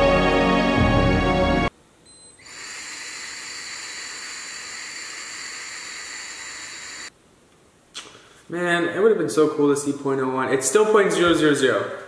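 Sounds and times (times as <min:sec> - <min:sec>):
background music: 0:00.0 - 0:01.7.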